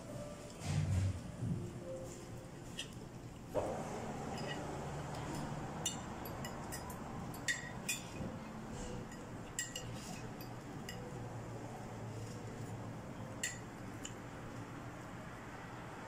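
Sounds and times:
low restaurant room hum: 0:00.0 - 0:16.0
cutlery clinking against a plate: 0:02.6 - 0:03.0, 0:04.2 - 0:11.2, 0:13.3 - 0:14.2.

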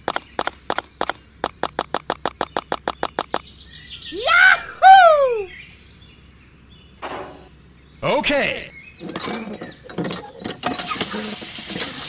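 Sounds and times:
clay bricks clicking: 0:00.0 - 0:03.4
sweeping bird-like calls: 0:00.0 - 0:06.0.

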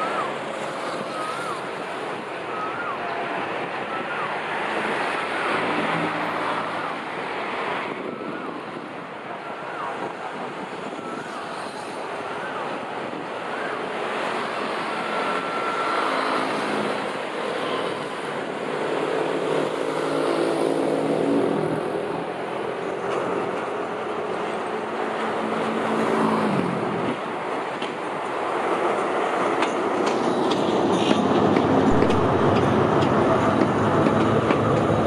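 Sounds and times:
locomotive engine running: 0:26.7 - 0:35.0.

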